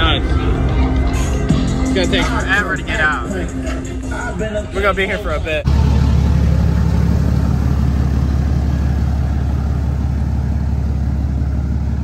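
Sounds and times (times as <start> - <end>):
truck engine idling: 5.6 - 12.0.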